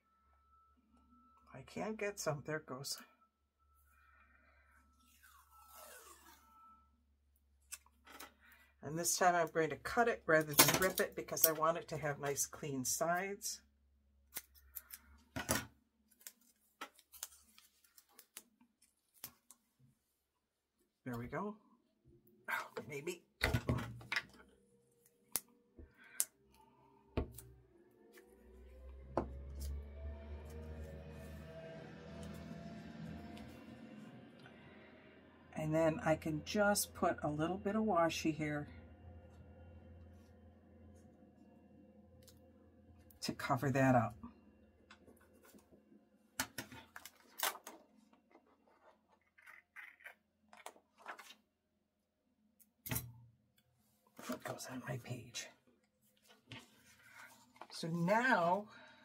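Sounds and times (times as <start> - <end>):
tape rustling on paper: 16.1 - 19.6.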